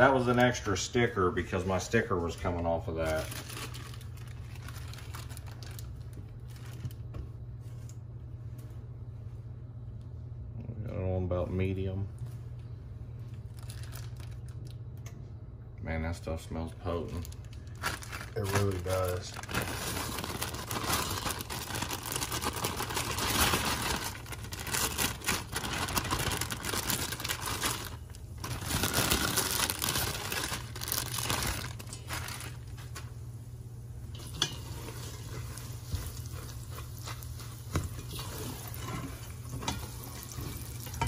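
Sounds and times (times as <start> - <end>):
plastic bag crinkling: 0.0 - 7.1, 13.4 - 14.8, 16.9 - 33.2.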